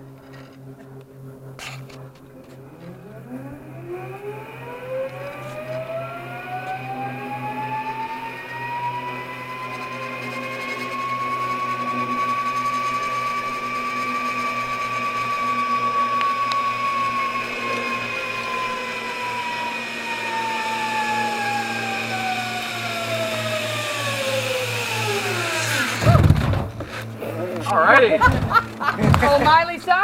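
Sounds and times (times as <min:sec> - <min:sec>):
zip line pulleys whining: 0:00.0 - 0:30.0
loud knocks: 0:28.2 - 0:29.5.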